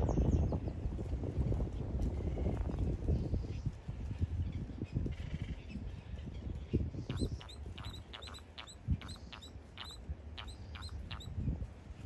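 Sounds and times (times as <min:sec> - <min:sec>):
terns calling: 0:06.9 - 0:11.4.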